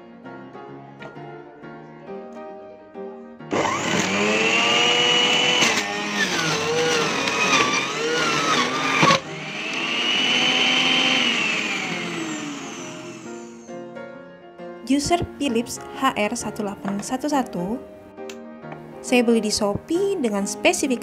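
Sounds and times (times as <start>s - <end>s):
soft piano music: 0.0s - 3.5s, 12.8s - 21.0s
juicer motor whining: 3.5s - 13.7s.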